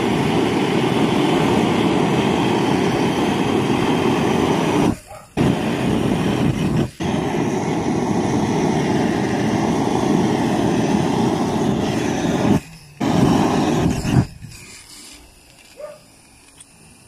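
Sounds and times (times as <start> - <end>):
gas torch flame burning: 0.0 - 17.0.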